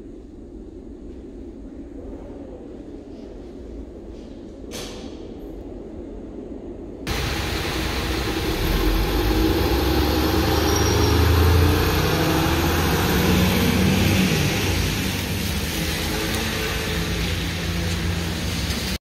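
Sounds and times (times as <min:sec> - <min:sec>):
bus engine drone: 0:06.6 - 0:19.0
steady rain: 0:07.1 - 0:19.0
tyres hissing on wet road: 0:07.1 - 0:19.0.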